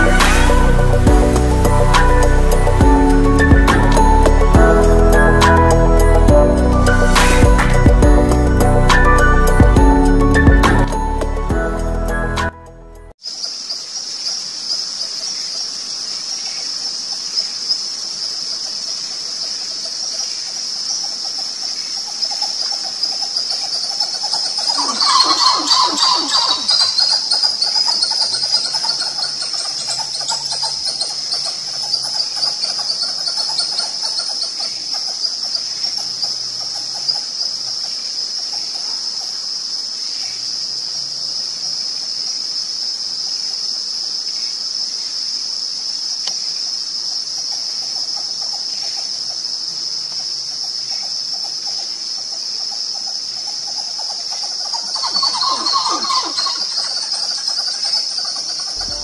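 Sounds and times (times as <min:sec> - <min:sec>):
lower pulsing insect chorus: 0:13.2 - 0:59.0
high-pitched insect drone: 0:15.6 - 0:40.4, 0:47.2 - 0:59.0.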